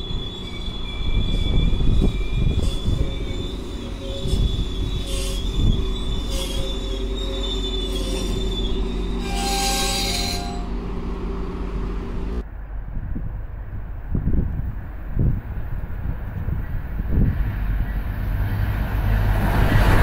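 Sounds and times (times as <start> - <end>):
train wheel squeal: 0.0 - 11.5
train wheel noise rushing: 0.0 - 12.4
train wheel screech: 0.0 - 12.4
low wind rumble: 0.0 - 20.0.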